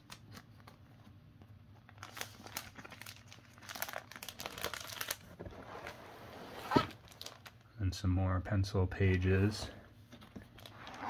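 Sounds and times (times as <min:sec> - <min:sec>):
plastic sleeves crinkling: 0:00.0 - 0:06.0, 0:06.8 - 0:07.7, 0:10.1 - 0:11.0.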